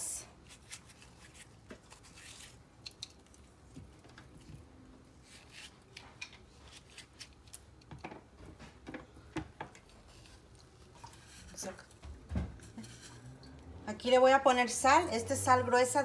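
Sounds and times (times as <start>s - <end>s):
knife cutting cucumber: 5.2s - 7.6s.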